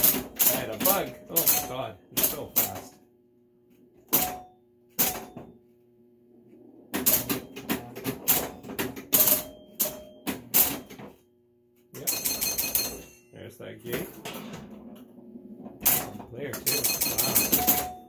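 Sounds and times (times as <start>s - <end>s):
pinball machine clacking: 0.0s - 3.0s, 4.0s - 5.6s, 6.6s - 11.2s, 12.0s - 18.0s.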